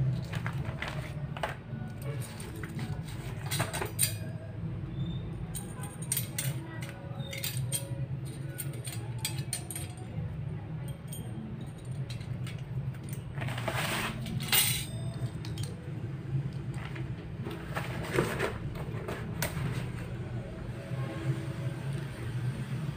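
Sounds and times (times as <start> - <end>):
metal cogs clinking: 0.1 - 4.4, 5.5 - 10.2, 10.8 - 15.9.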